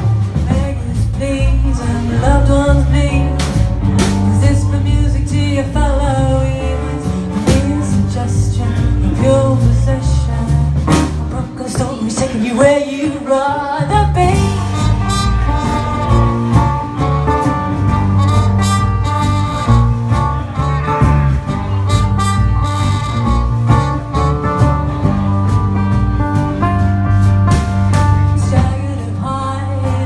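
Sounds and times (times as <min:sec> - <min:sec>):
drum kit beat: 0:00.0 - 0:30.0
trumpet melody: 0:14.2 - 0:28.6.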